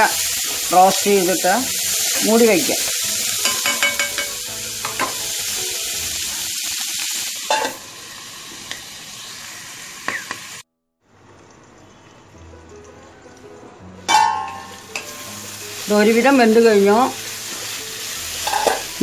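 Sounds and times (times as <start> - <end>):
vegetables sizzling in hot oil: 0.0 - 10.6, 14.1 - 19.0.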